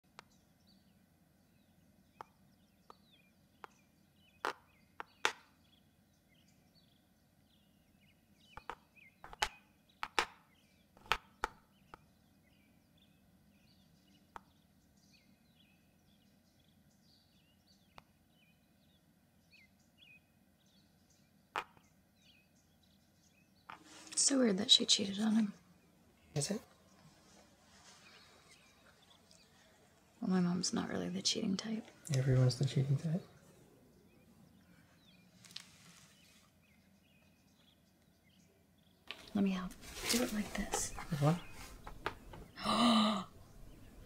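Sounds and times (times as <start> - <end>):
faint bird chirps: 0.1 - 44.0
sharp knocks and clicks: 8.6 - 10.4.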